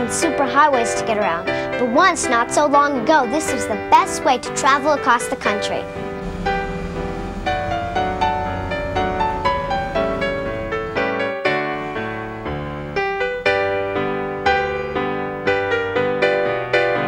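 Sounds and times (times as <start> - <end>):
keyboard melody: 0.0 - 17.0
bass line: 4.6 - 14.3.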